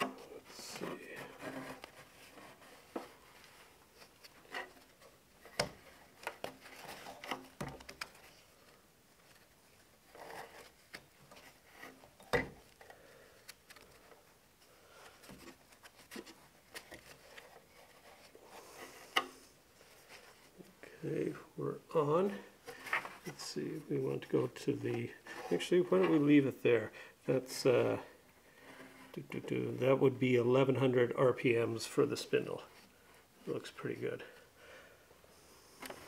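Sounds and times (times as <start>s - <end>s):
rubber belt rubbing and scraping: 0.0s - 12.7s.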